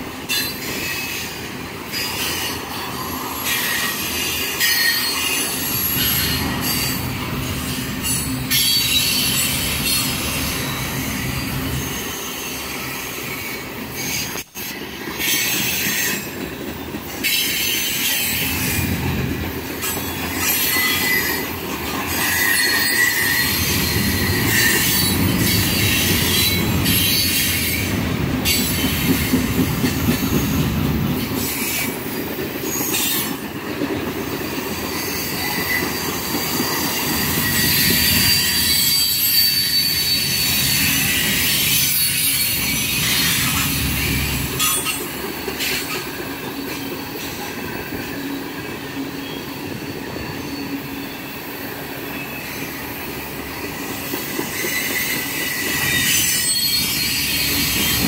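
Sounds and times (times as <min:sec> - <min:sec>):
steel wheels rumbling on rail: 0:00.0 - 0:58.0
wheels clacking over rail joints: 0:14.0 - 0:39.4, 0:40.6 - 0:49.0
high-pitched wheel squeal: 0:22.1 - 0:29.4, 0:35.0 - 0:58.0.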